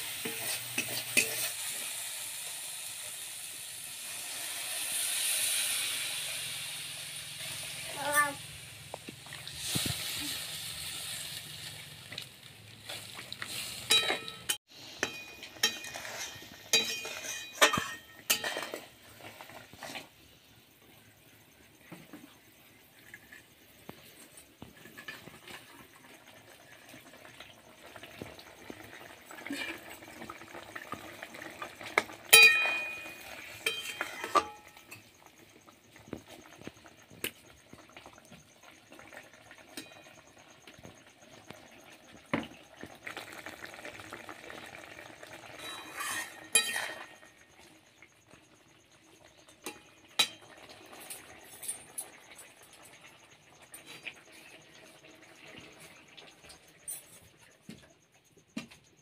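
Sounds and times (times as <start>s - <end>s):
metal spatula scraping pot: 0.0s - 2.0s, 12.8s - 20.2s, 23.0s - 26.0s, 31.6s - 35.2s, 45.4s - 47.4s
curry sizzling: 0.0s - 57.5s
metal clanging on metal: 13.9s - 18.9s, 32.3s - 35.1s.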